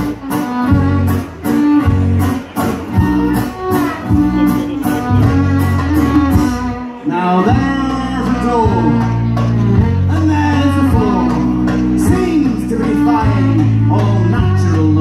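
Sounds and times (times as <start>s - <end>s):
folk-rock band playing: 0.0s - 15.0s
man singing: 7.0s - 15.0s.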